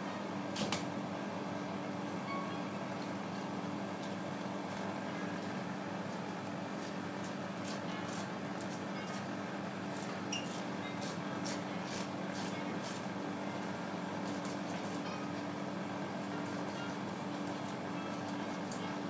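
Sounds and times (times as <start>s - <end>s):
kitchen machinery hum: 0.0s - 19.0s.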